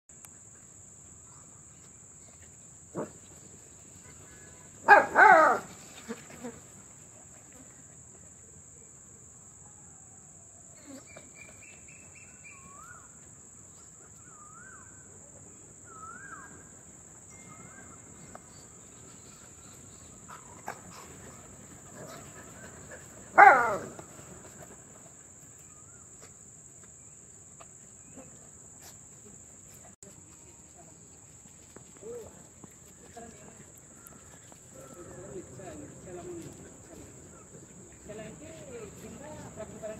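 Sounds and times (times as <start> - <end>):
crickets chirring: 0.1 - 39.9
dogs yelping: 4.9 - 5.8, 20.3 - 24.1.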